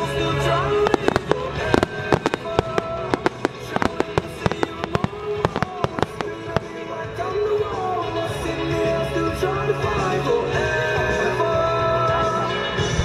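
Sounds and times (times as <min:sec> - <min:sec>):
music playing: 0:00.0 - 0:13.0
fireworks bangs and cracks: 0:00.6 - 0:07.9.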